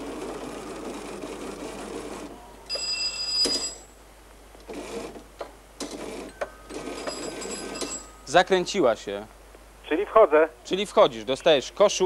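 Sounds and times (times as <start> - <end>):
typewriter bell ringing: 2.7 - 3.9, 6.1 - 8.5.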